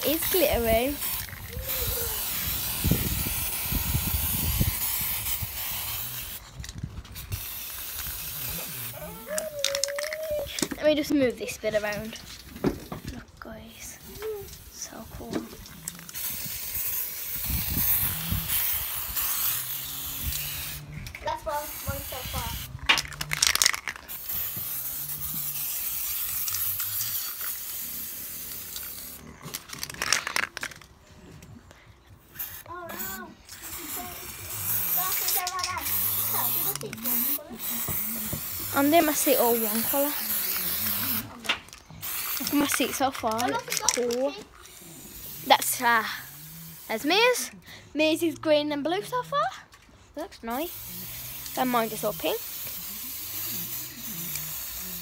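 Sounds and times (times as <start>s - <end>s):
aerosol spray hissing: 0.0s - 6.4s, 7.2s - 10.5s, 16.2s - 20.9s, 21.5s - 22.7s, 24.0s - 29.2s, 32.4s - 41.3s, 42.0s - 43.4s, 50.5s - 55.0s.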